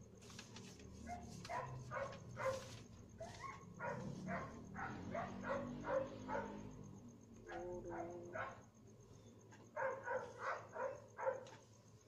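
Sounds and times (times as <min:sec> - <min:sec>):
dog barking: 0:01.1 - 0:06.8, 0:07.5 - 0:08.6, 0:09.7 - 0:11.6.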